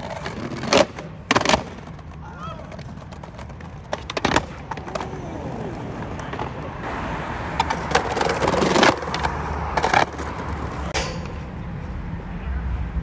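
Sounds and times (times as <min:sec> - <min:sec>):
skateboard clacking on ground: 0:00.0 - 0:06.9, 0:07.6 - 0:11.4
skateboard scrape: 0:00.0 - 0:06.9, 0:07.6 - 0:11.0
skateboard wheels rolling on bricks: 0:00.0 - 0:06.9, 0:07.6 - 0:11.0.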